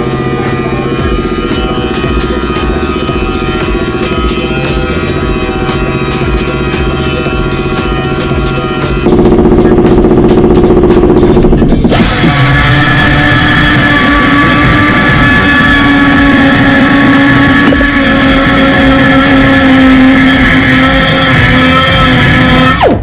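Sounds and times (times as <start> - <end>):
die grinder whining: 0.0 - 23.0.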